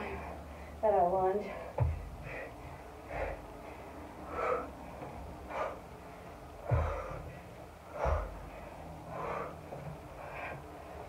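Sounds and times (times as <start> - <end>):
dull thump: 1.7 - 2.3, 6.6 - 7.4.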